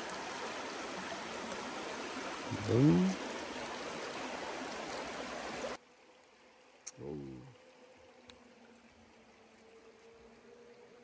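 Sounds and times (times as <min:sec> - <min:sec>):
stream rushing: 0:00.0 - 0:06.9.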